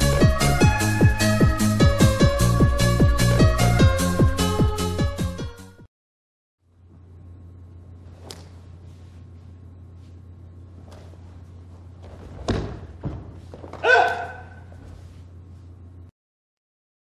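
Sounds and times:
steady low hum: 6.6 - 16.1
cotton uniforms swishing: 8.1 - 15.8
body thudding onto mat: 10.8 - 13.9.

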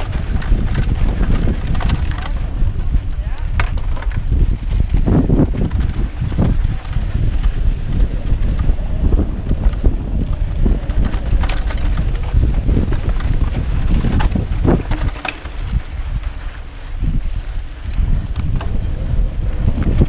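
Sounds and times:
bike clicks and rattles: 0.0 - 20.0
wind buffeting microphone: 0.0 - 20.0.

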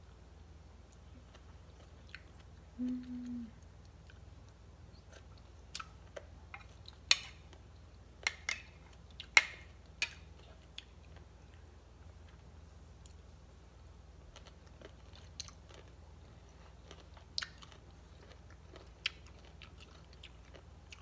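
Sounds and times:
closed-mouth hum: 0.3 - 5.5
crunchy food being chewed: 0.8 - 2.7, 14.2 - 21.0.

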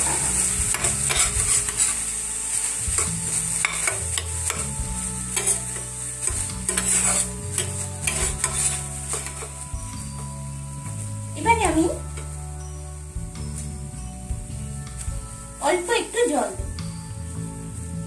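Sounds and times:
spatula scraping a metal pan: 0.0 - 10.3
paste sizzling in hot oil: 0.0 - 18.0.

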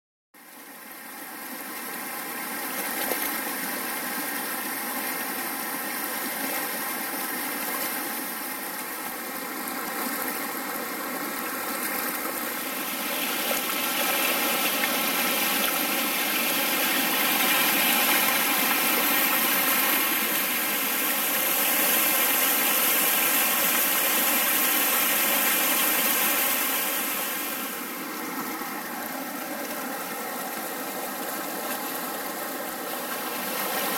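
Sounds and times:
stream running over rocks: 0.4 - 33.9.

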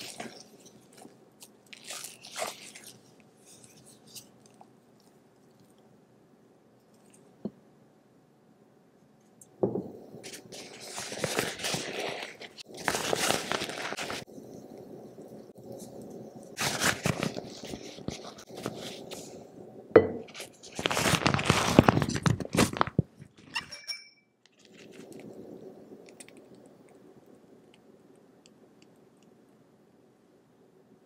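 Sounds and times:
piping bag crinkling: 0.0 - 5.8, 10.2 - 14.3, 15.7 - 19.2, 20.4 - 23.4.

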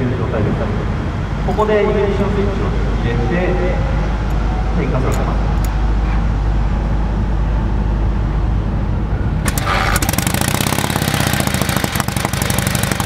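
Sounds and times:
motorcycle engine running: 9.5 - 13.0.

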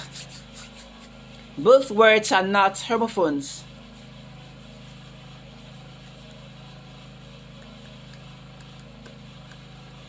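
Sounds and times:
low mechanical motor hum: 0.0 - 10.0.

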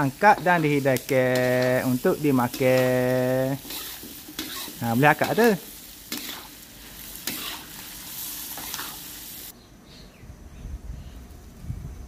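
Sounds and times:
food sizzling in a wok: 0.0 - 9.6.

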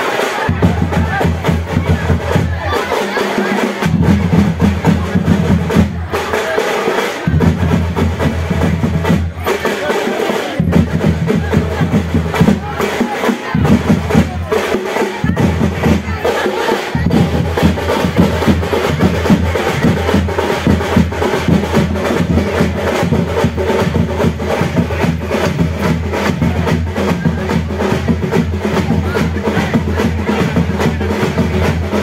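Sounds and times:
drums playing fast beat: 0.0 - 32.0
deep drum strokes: 16.9 - 32.0.

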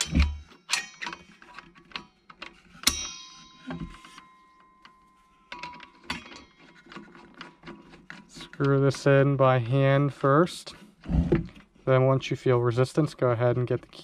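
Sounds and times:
saw blade ringing: 0.0 - 1.3, 2.8 - 5.1
small metallic clicks and taps: 0.0 - 8.8.

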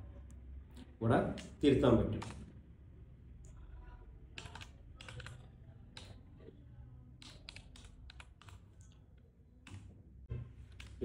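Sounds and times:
typing on computer keyboard: 2.2 - 2.5, 4.3 - 6.2, 7.2 - 9.0.

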